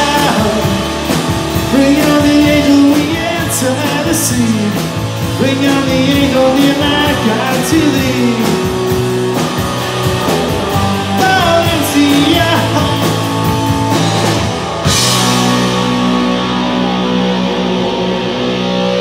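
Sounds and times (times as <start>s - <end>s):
person singing: 0.0s - 9.0s, 10.3s - 13.5s
live rock band playing: 0.0s - 19.0s.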